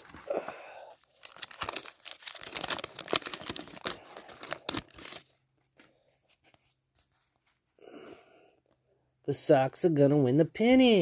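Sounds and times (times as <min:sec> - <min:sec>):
paper wrapper crinkling and tearing: 0:00.0 - 0:05.4.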